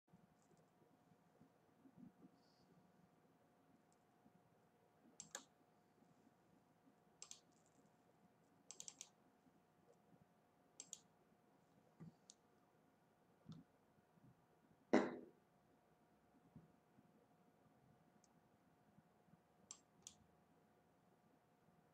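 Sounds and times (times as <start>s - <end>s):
faint steady hum: 0.1s - 21.9s
knock: 15.0s - 15.3s.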